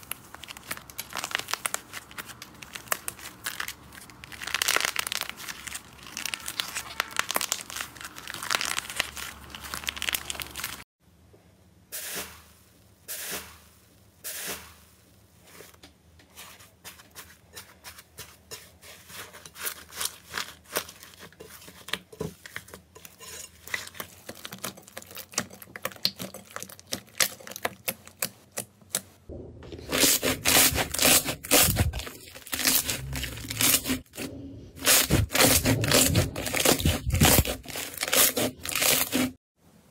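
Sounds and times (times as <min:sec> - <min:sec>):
slime crackling and popping: 0:00.0 - 0:10.8, 0:23.8 - 0:28.3.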